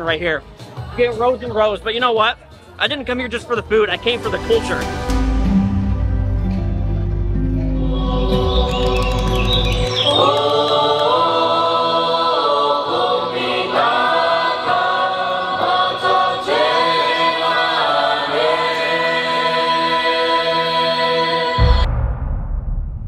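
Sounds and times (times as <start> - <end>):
group singing in harmony: 4.2 - 22.0.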